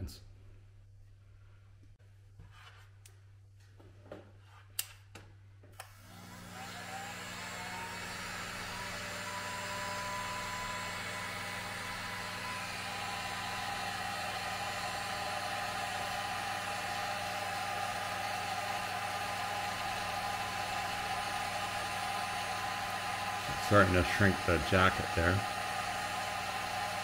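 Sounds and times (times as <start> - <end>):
heat gun blowing hot air: 5.8 - 27.0.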